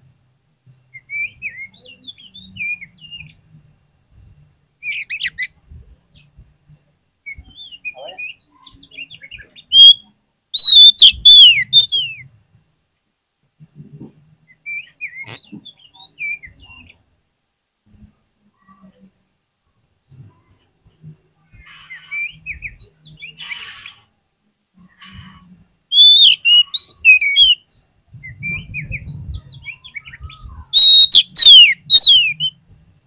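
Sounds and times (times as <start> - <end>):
bird whistling and chirping: 1.0 - 3.3, 4.8 - 5.5, 7.3 - 10.0, 10.6 - 12.2, 25.9 - 32.6.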